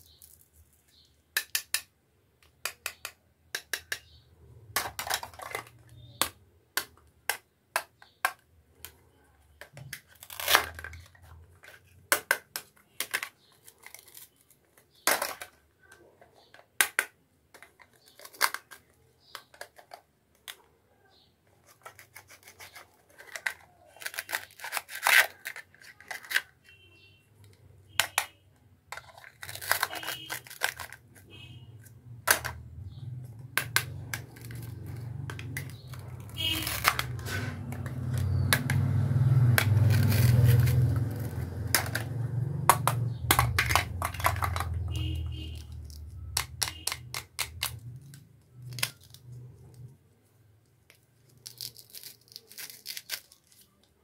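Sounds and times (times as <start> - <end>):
velcro ripping: 51.2 - 53.8.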